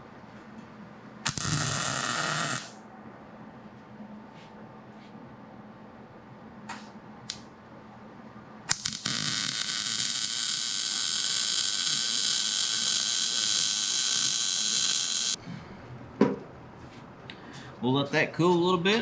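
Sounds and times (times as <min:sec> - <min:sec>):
welder arc welding: 0:01.2 - 0:02.8, 0:08.7 - 0:15.4.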